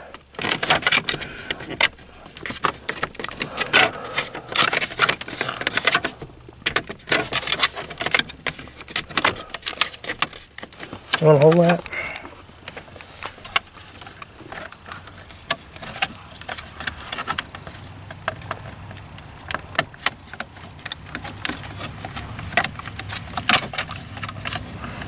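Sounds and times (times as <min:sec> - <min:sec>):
hard plastic clicking and rattling: 0:00.0 - 0:25.0.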